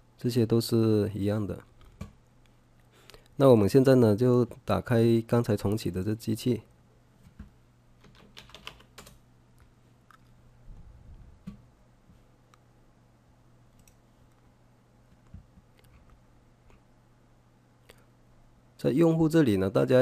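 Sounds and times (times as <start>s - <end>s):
low steady hum: 0.0s - 20.0s
computer keyboard keystrokes: 8.0s - 9.2s.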